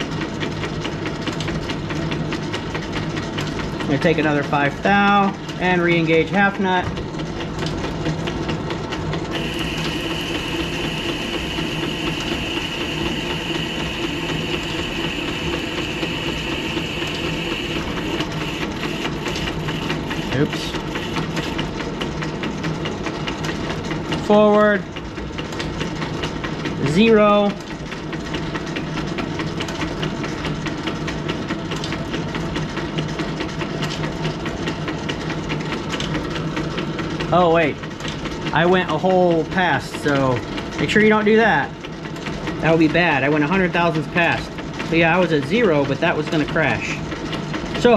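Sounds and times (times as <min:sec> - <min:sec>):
lathe machine hum: 0:05.0 - 0:24.2
steady high tone: 0:09.3 - 0:19.1.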